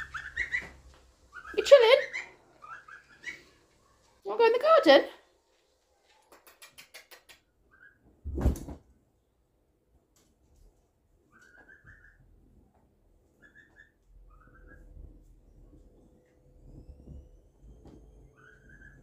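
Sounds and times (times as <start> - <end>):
high-pitched animal peeps: 0.0 - 3.6, 6.3 - 8.1, 11.3 - 12.3, 13.3 - 15.1, 18.2 - 19.0.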